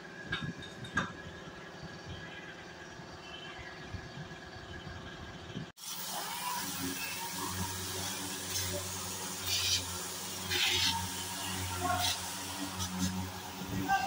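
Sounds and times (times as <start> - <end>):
orbital sander running: 6.0 - 14.0.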